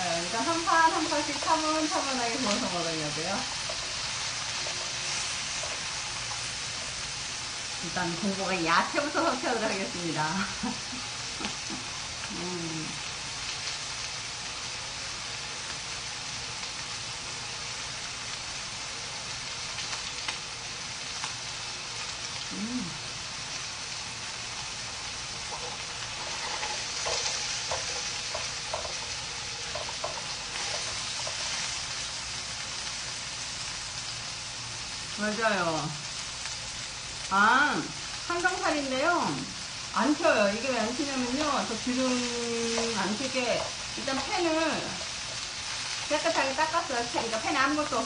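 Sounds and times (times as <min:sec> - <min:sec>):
meat sizzling in a pan: 0:00.0 - 0:48.0.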